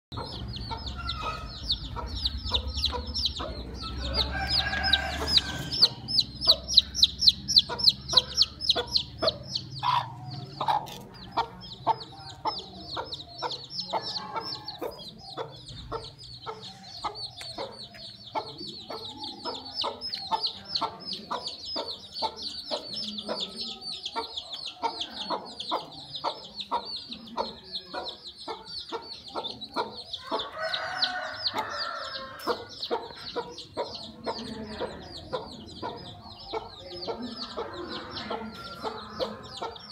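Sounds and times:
chicks peeping: 0:00.1 - 0:39.9
hen clucking: 0:00.1 - 0:39.9.

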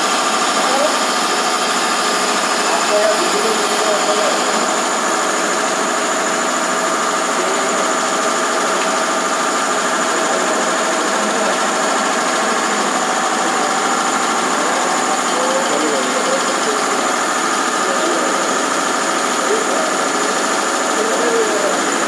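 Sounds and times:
machinery droning with high whine: 0:00.0 - 0:22.0.

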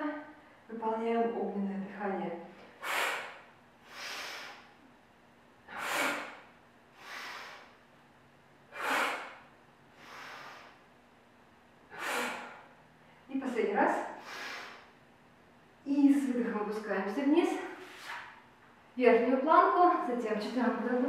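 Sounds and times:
woman's forceful exhales: 0:02.8 - 0:04.7, 0:05.7 - 0:07.8, 0:08.7 - 0:10.8, 0:11.9 - 0:12.7, 0:14.2 - 0:14.9
woman's soft inhales: 0:02.8 - 0:04.7, 0:07.0 - 0:07.8, 0:08.7 - 0:10.8, 0:11.9 - 0:12.7, 0:14.2 - 0:14.9.

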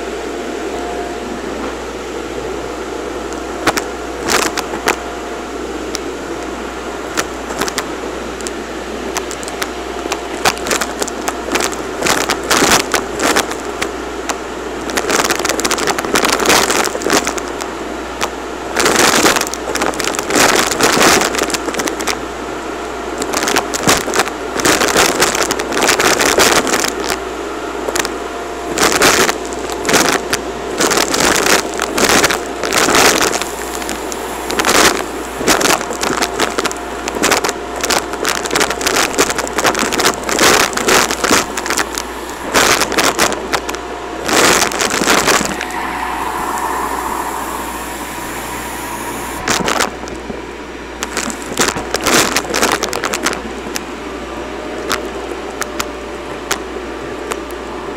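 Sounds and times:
vacuum cleaner whine: 0:00.0 - 0:52.8.

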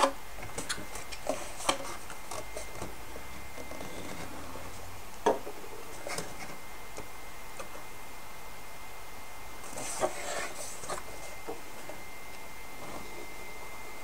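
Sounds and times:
faint steady high hum: 0:00.0 - 0:14.0.

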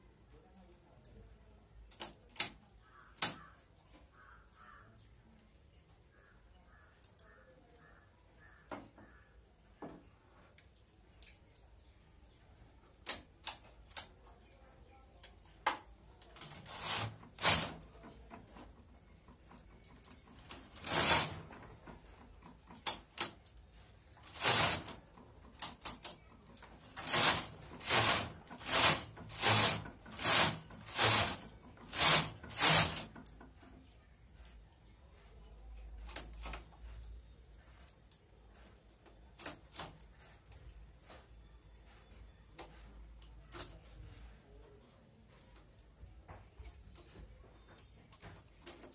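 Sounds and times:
knitting machine carriage sliding: 0:16.3 - 0:33.8.

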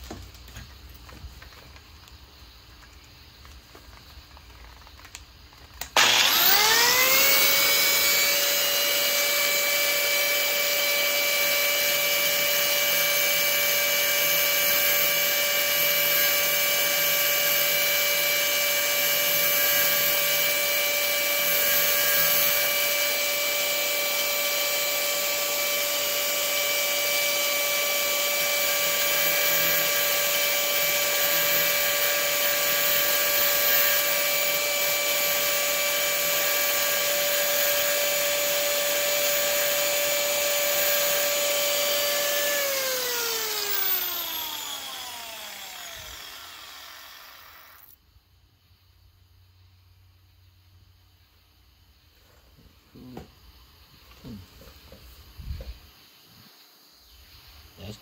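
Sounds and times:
electric grinder whining: 0:05.8 - 0:48.0.

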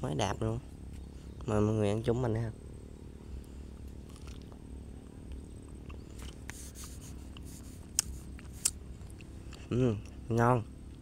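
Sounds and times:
low steady hum: 0:00.0 - 0:11.0
crunching guava: 0:03.9 - 0:10.2.

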